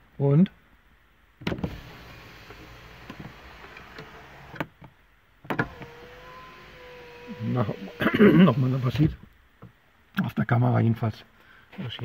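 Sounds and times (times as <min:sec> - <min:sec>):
electric window motor humming: 0:01.5 - 0:04.6, 0:05.5 - 0:09.2.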